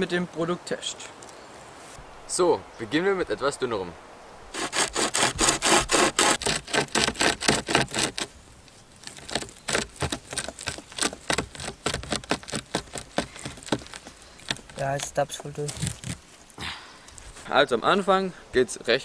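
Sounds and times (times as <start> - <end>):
hand chainsaw sawing a branch: 4.5 - 16.6.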